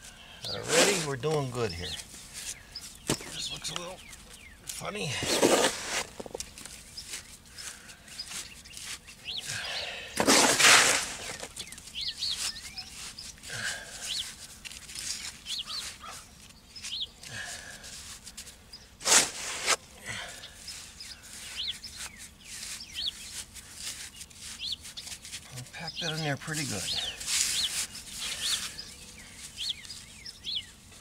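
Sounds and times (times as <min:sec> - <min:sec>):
small birds chirping: 0:00.0 - 0:31.0
soft scrapes of cement: 0:00.5 - 0:01.3, 0:05.1 - 0:09.1, 0:10.2 - 0:19.8, 0:20.5 - 0:25.6, 0:26.6 - 0:30.2
loud rushing scrapes: 0:00.6 - 0:01.1, 0:05.2 - 0:06.2, 0:10.2 - 0:11.4, 0:19.0 - 0:19.8.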